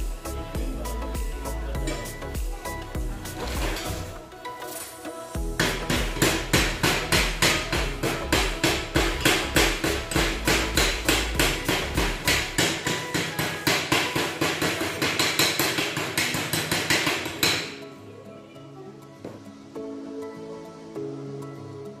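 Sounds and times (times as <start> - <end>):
chipping hammer striking steel: 5.6 - 17.8.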